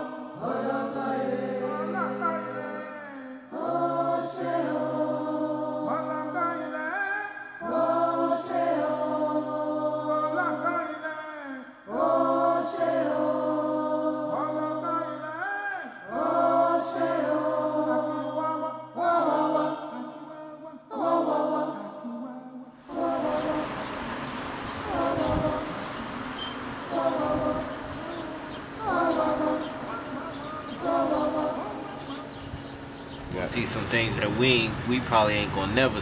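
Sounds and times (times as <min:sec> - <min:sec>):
voices chanting in harmony: 0:00.0 - 0:36.0.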